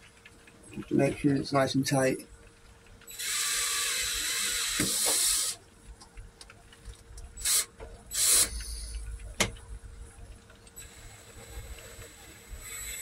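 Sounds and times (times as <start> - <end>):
ratchet wrench clicking: 3.1 - 5.6, 7.4 - 8.8.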